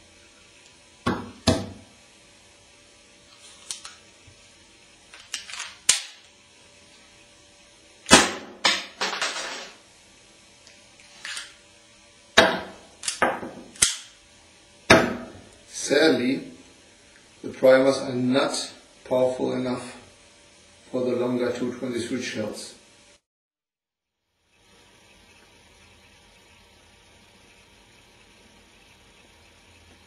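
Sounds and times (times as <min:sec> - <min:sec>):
pistol handling clicks and clatter: 0:05.1 - 0:06.3, 0:13.0 - 0:13.2, 0:13.8 - 0:14.1.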